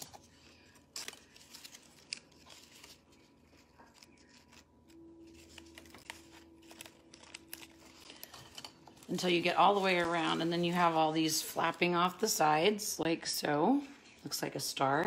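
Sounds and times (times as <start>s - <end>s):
cardboard and tape rustling: 0.0s - 11.8s.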